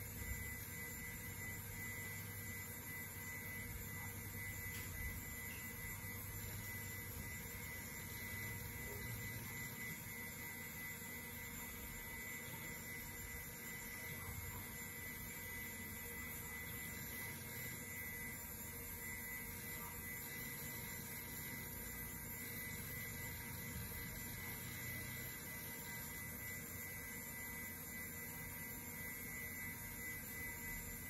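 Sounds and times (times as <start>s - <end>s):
thin high tone: 0.0s - 26.2s
computer fans and drives whirring: 0.0s - 31.0s.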